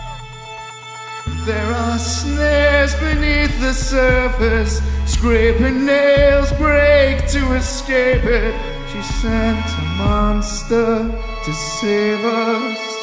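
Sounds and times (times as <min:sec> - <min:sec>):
low bass: 0:00.0 - 0:12.1
man singing into a microphone: 0:01.4 - 0:13.0.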